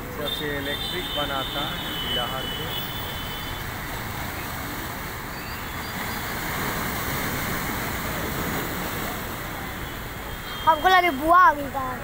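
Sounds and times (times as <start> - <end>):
sea waves splashing on rocks: 3.6 - 12.0.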